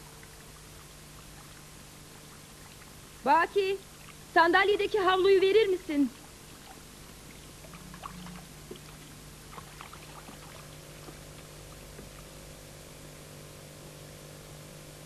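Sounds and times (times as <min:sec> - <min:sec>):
water trickling and dripping: 0:00.0 - 0:05.2, 0:06.1 - 0:12.4
steady low hum: 0:00.0 - 0:15.0.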